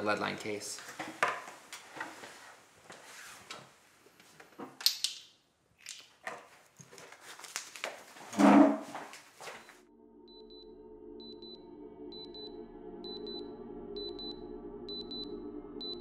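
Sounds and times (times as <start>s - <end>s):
paper rustling: 6.5s - 9.7s.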